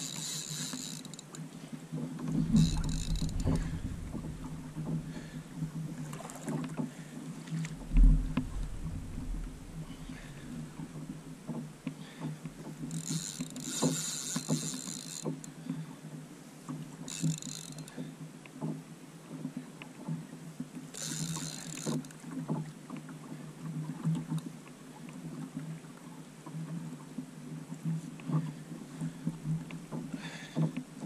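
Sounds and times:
fishing reel drag buzzing: 0:00.0 - 0:01.3, 0:02.3 - 0:05.4, 0:12.8 - 0:15.3, 0:17.1 - 0:17.9, 0:20.9 - 0:22.1
water lapping against kayak hull: 0:00.0 - 0:15.9.

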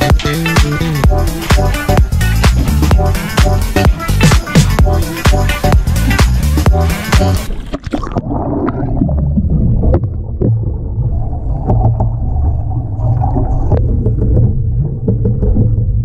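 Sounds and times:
muffled churning water underwater: 0:07.4 - 0:16.0.

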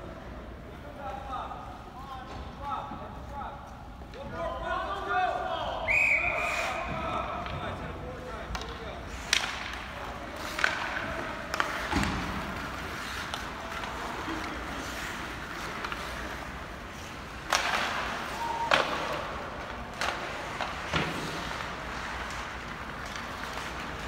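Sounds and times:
skates scraping ice: 0:06.4 - 0:24.0
hockey sticks striking puck: 0:06.7 - 0:24.0
pucks and players hitting boards: 0:06.7 - 0:24.0.

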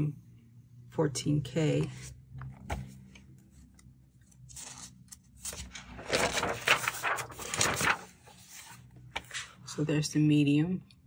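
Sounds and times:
paper rustling: 0:02.0 - 0:09.6.

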